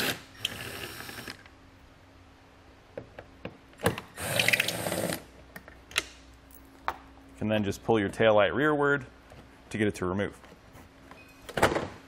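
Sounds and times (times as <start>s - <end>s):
cordless power tool spinning: 0.0s - 1.4s.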